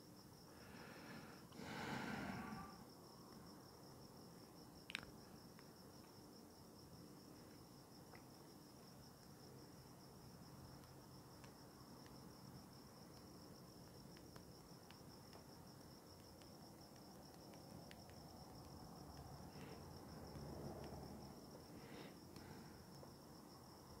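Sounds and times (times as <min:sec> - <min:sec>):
crickets trilling: 0:00.0 - 0:24.0
faint clicks: 0:04.9 - 0:06.2, 0:13.1 - 0:21.0.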